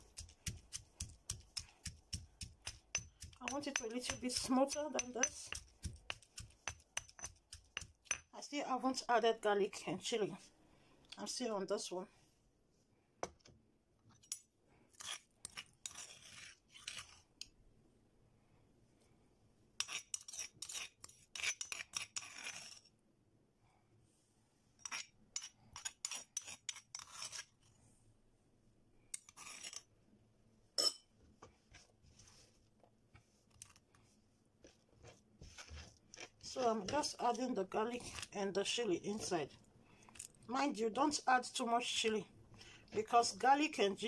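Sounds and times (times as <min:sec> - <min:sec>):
pestle pounding in a mortar: 0:00.0 - 0:08.3.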